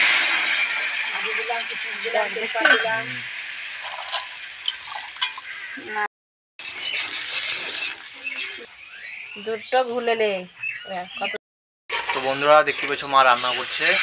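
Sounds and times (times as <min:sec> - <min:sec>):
food sizzling: 0:00.0 - 0:08.7, 0:11.9 - 0:14.0.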